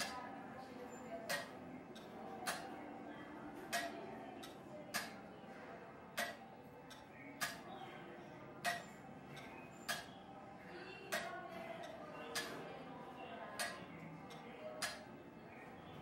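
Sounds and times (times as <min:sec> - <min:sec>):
mechanical clock ticking: 0:01.2 - 0:02.8, 0:03.6 - 0:05.3, 0:06.1 - 0:07.8, 0:08.6 - 0:10.2, 0:11.1 - 0:12.7, 0:13.6 - 0:15.2.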